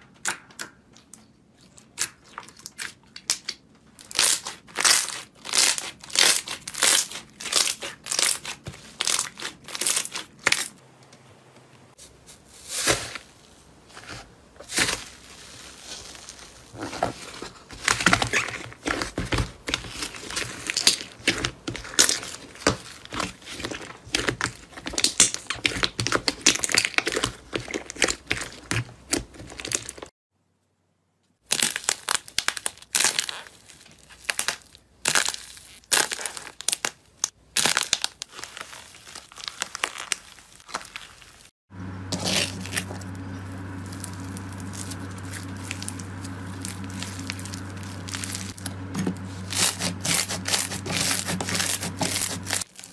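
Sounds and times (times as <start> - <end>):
dry crust cracking and crunching: 2.0 - 10.8, 18.7 - 30.1, 31.4 - 52.9.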